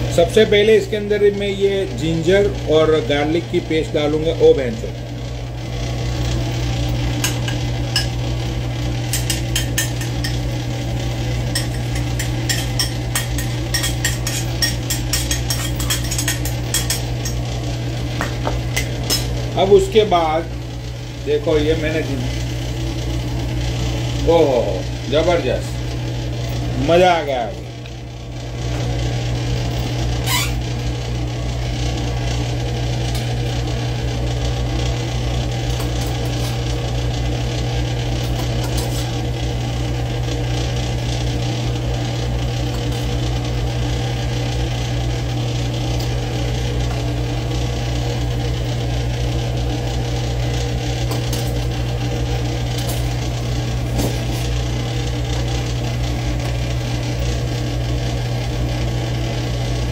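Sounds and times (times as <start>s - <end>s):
range hood exhaust fan humming: 0.0s - 59.9s.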